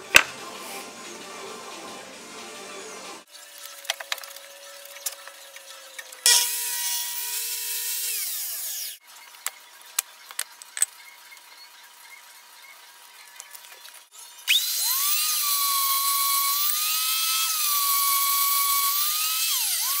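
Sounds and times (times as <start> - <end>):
miter saw cutting wood: 3.3 - 9.0, 14.1 - 20.0.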